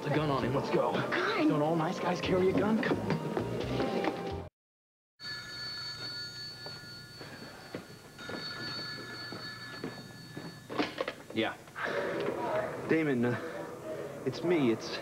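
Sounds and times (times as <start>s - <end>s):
desk telephone ringing: 5.2s - 11.2s.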